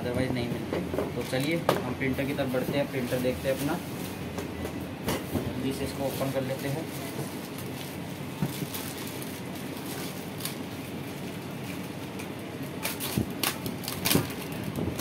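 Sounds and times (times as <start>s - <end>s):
plastic wrapping rustling: 2.2s - 4.3s, 5.6s - 15.0s
sharp plastic crinkles: 5.9s - 15.0s.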